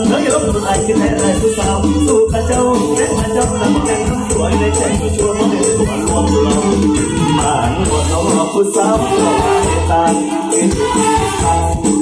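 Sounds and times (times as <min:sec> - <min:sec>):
dance beat with bass and percussion: 0:00.0 - 0:09.1
man singing into microphone: 0:00.0 - 0:12.0.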